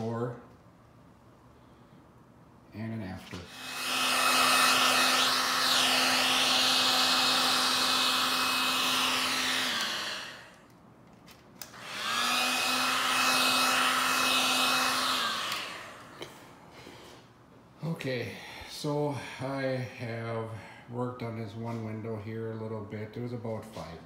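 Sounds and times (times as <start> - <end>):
heat gun fan whir: 3.0 - 17.3.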